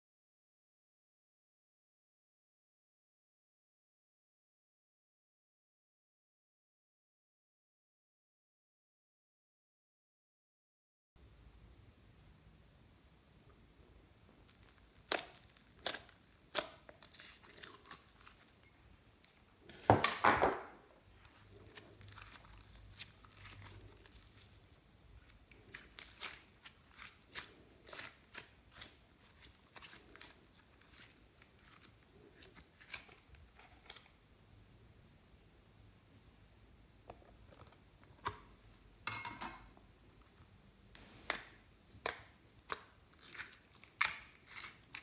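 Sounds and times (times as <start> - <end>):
slime popping and crackling: 14.4 - 19.4, 21.3 - 34.1
slime squelching: 14.4 - 19.9, 21.1 - 34.2, 40.9 - 45.0.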